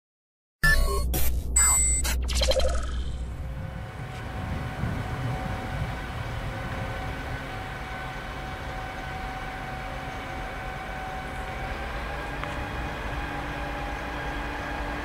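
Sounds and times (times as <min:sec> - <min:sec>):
distant diesel locomotive engine: 0:03.1 - 0:15.0.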